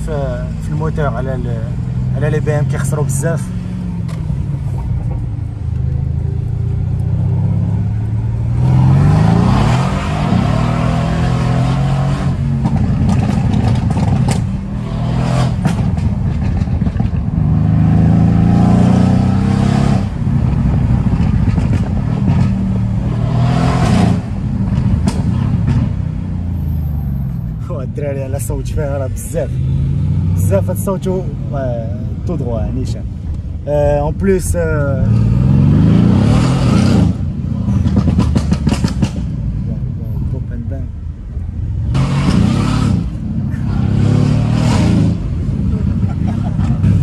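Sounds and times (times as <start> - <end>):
car engine accelerating hard: 0.7 - 27.3, 34.8 - 40.8, 41.7 - 47.0
exhaust pops and crackles: 12.3 - 18.2, 20.1 - 23.1, 23.8 - 26.2, 37.6 - 40.8.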